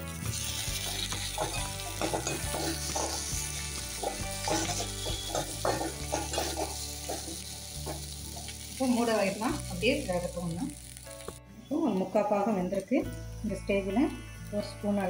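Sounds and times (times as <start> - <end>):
potatoes sizzling in oil: 0.0 - 15.0
metal spoon scraping pan: 0.3 - 8.2.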